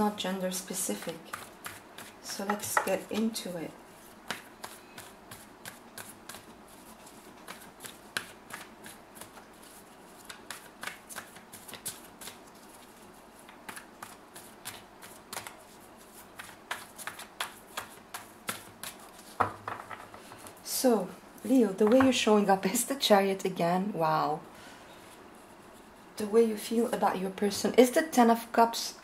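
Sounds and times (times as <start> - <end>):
cards being shuffled: 4.2 - 19.8.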